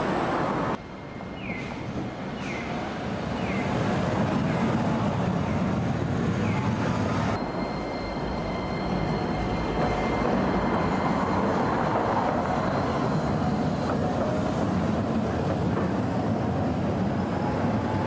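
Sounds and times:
trams rumbling along track: 0:00.0 - 0:18.0
thin steady high tone: 0:07.4 - 0:13.6.

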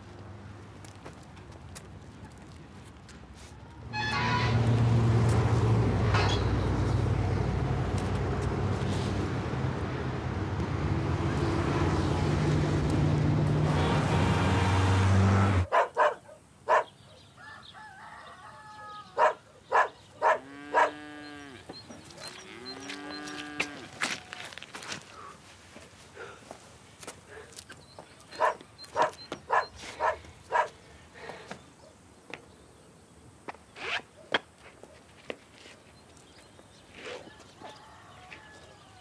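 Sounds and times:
passing cars: 0:03.8 - 0:15.7.

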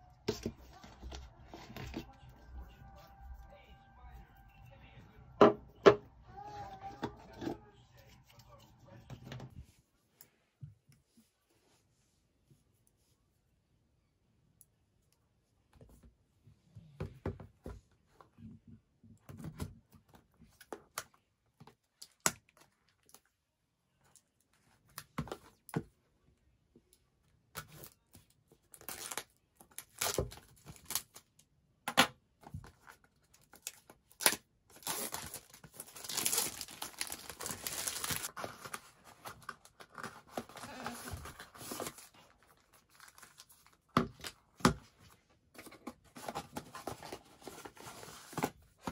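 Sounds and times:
plastic wrap tearing and crinkling: 0:28.7 - 0:31.3, 0:33.2 - 0:44.4.

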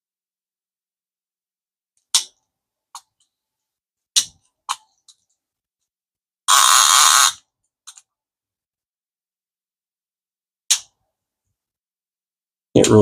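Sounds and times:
fishing reel ratcheting buzz: 0:06.5 - 0:07.4.

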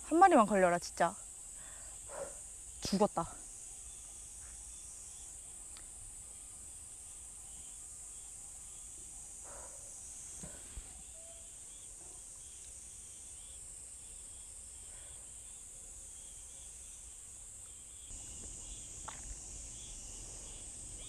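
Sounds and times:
high-pitched insect chorus: 0:00.0 - 0:21.0
faint chirps: 0:01.5 - 0:21.0.

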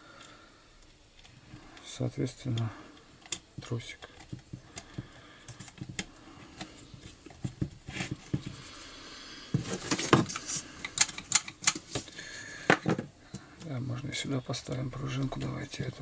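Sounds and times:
clicks and taps of small parts: 0:02.5 - 0:06.7
parts clattering on workbench: 0:09.5 - 0:13.1.

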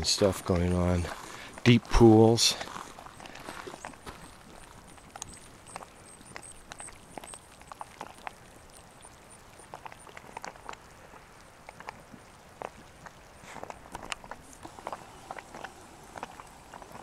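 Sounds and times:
footsteps on gravelly ground: 0:00.1 - 0:08.2, 0:13.4 - 0:17.0.

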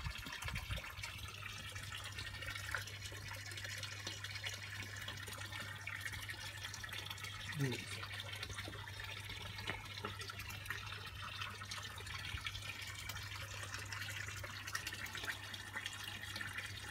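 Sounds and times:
water trickling into pond: 0:00.0 - 0:16.9.

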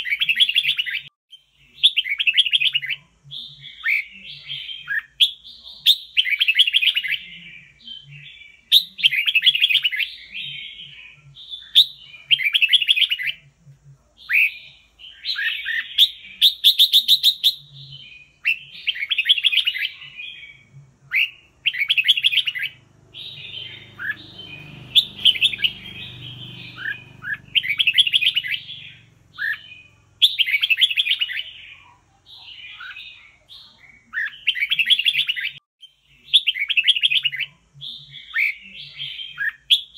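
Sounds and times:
bird singing warbled phrases: 0:00.0 - 0:39.9.

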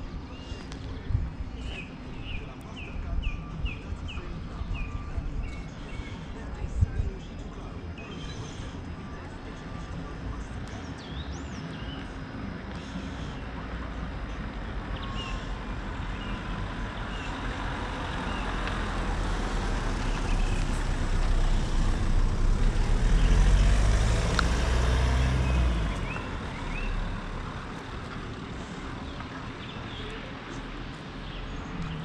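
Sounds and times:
low outdoor rumble: 0:00.0 - 0:32.0
small birds chirping: 0:00.0 - 0:32.0
vehicle passing by: 0:15.5 - 0:29.6.

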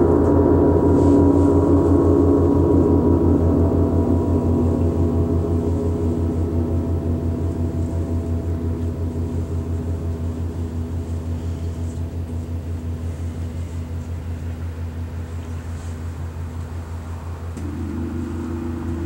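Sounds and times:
gongs ringing: 0:00.0 - 0:11.4, 0:17.6 - 0:19.0.

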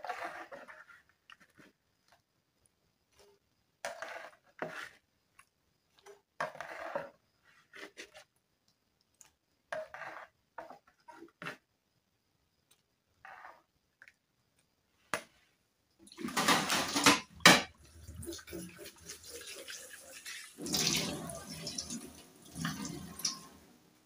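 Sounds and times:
metal spoon scraping bowl: 0:00.0 - 0:00.9, 0:03.8 - 0:05.0, 0:06.4 - 0:08.2, 0:09.7 - 0:11.5
water splashing: 0:16.0 - 0:23.9.

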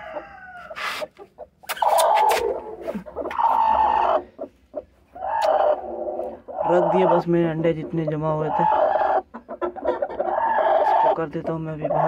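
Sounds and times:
hen squawking harshly: 0:06.5 - 0:07.3, 0:08.4 - 0:09.3.

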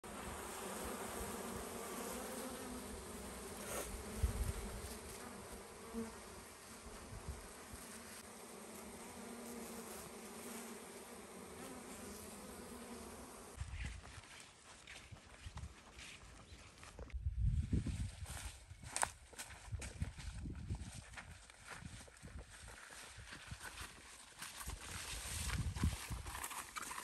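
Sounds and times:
bees buzzing: 0:00.1 - 0:13.6.

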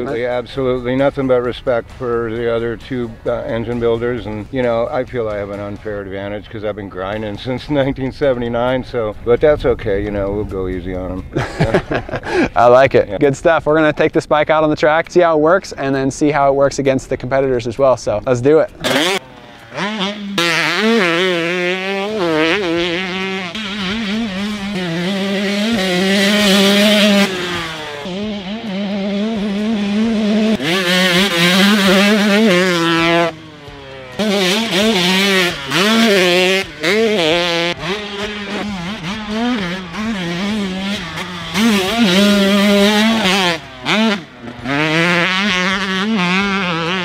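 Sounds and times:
motocross engine revving: 0:18.8 - 0:47.0.

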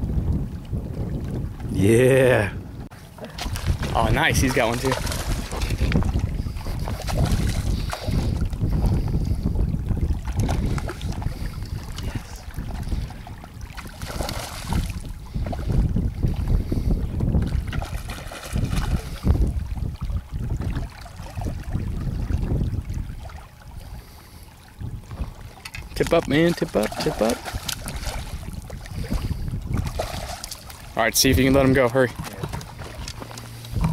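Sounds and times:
wind buffeting microphone: 0:00.0 - 0:33.9
fish splashing in water: 0:03.2 - 0:09.4, 0:10.0 - 0:16.0, 0:17.4 - 0:24.4, 0:26.3 - 0:31.0.

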